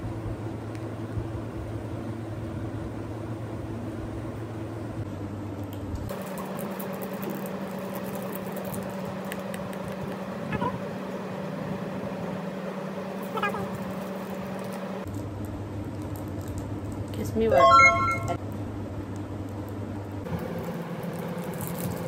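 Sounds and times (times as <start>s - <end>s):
plastic wrapper crinkling: 6.2s - 9.1s.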